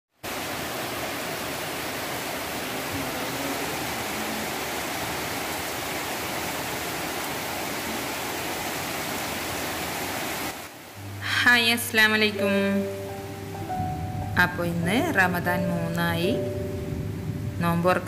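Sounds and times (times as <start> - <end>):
heavy rain on foliage: 0.2 - 11.2, 15.2 - 17.8.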